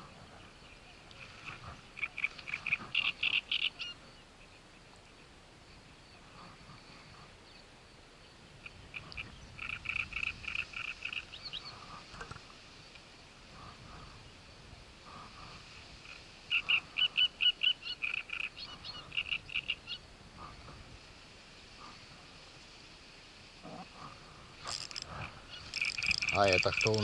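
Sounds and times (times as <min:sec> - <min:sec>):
frog croaking: 0:01.1 - 0:04.1, 0:08.6 - 0:12.4, 0:15.1 - 0:20.8, 0:23.6 - 0:27.0.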